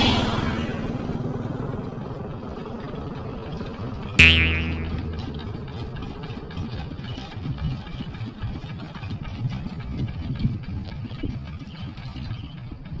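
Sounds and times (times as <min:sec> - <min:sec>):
loud pitched tone: 0:04.2 - 0:06.0
engine chugging at low speed: 0:04.9 - 0:13.0.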